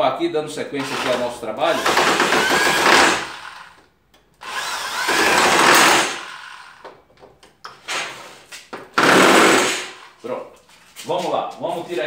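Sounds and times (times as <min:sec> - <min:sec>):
electric drill driving a screw: 0:00.8 - 0:03.8, 0:04.4 - 0:06.9, 0:09.0 - 0:10.1.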